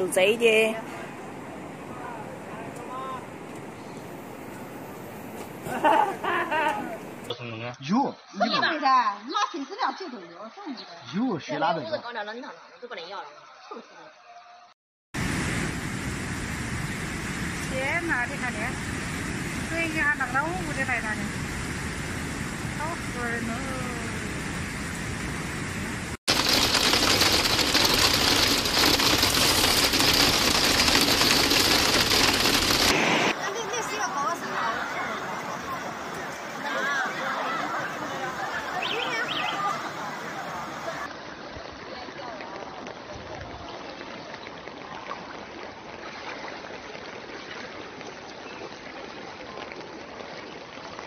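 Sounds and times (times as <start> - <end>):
floodwater rushing: 0.0 - 7.3, 15.2 - 51.0
hail pelting down: 26.3 - 38.4.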